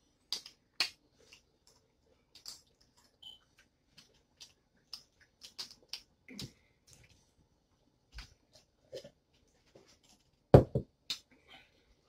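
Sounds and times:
chewing smacks and clicks: 0.3s - 7.1s.

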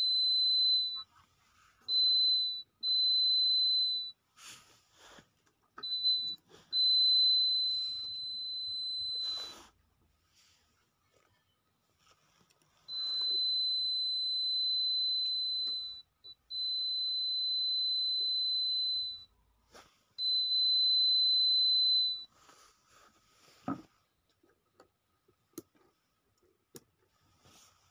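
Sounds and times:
high-pitched buzzer beeps: 0.0s - 1.0s, 1.9s - 4.1s, 5.8s - 9.6s, 12.9s - 19.3s, 20.2s - 22.3s.

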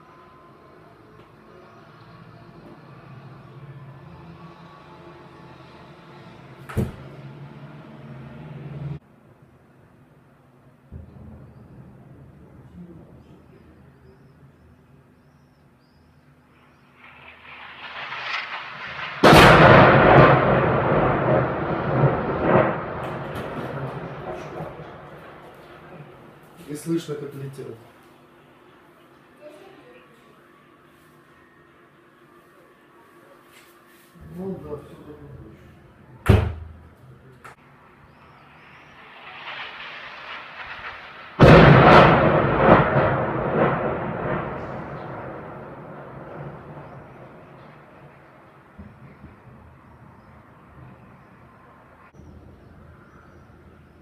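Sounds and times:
shell rushing sound: 17.0s - 20.4s, 38.5s - 42.3s
shell explosion blast: 17.0s - 26.7s, 38.6s - 49.6s
smaller bangs: 17.0s - 27.3s, 38.5s - 49.6s.

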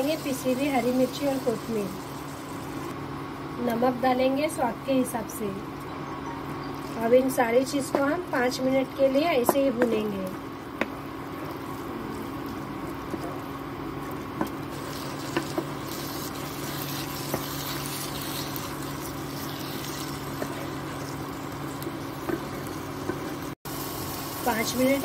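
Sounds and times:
meat sizzling in a pan: 0.0s - 2.9s, 11.6s - 25.0s
steady hum: 0.0s - 25.0s.

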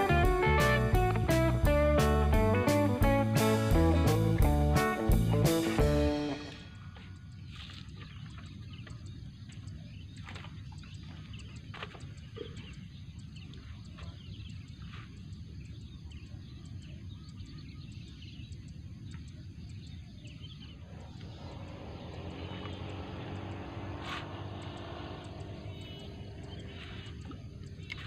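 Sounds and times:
engine hum: 0.0s - 14.2s, 20.6s - 28.0s
steady low rumble: 0.0s - 28.0s
faint bird chirps: 6.5s - 28.0s.

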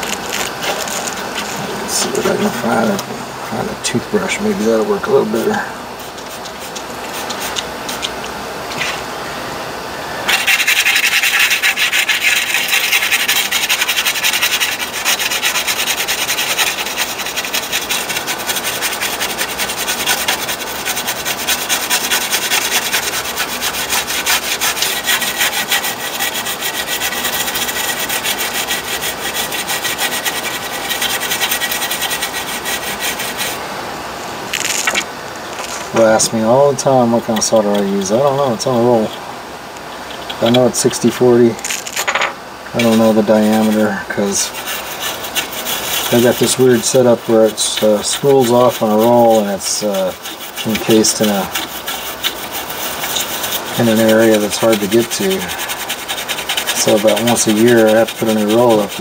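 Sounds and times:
toothbrush scrubbing circuit board: 5.3s - 8.2s, 10.3s - 33.6s, 36.0s - 39.2s, 39.9s - 41.4s, 42.8s - 59.0s.

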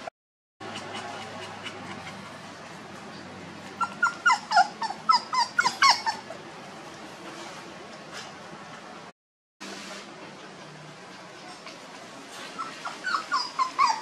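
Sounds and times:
puppy whimpering: 0.6s - 2.4s, 3.7s - 6.4s, 11.5s - 14.0s.

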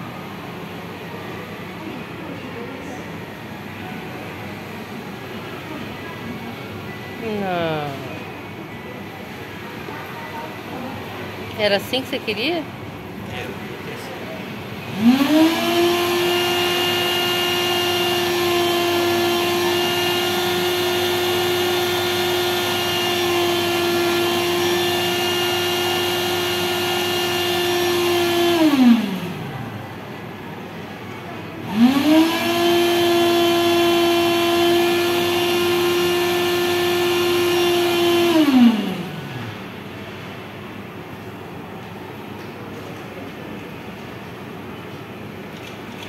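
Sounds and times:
motor whine: 14.9s - 29.5s, 31.7s - 39.7s.

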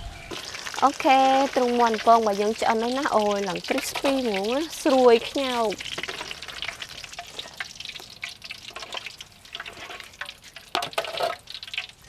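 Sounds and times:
chicken deep-frying in oil: 0.0s - 12.0s
metal utensil stirring in wok: 3.6s - 12.0s.

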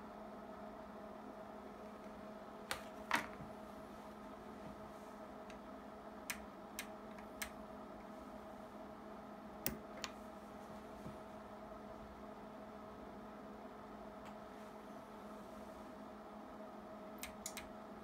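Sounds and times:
low equipment hum: 0.0s - 18.0s
sharp switch clicks: 6.3s - 7.6s, 9.6s - 10.2s, 17.2s - 17.7s.

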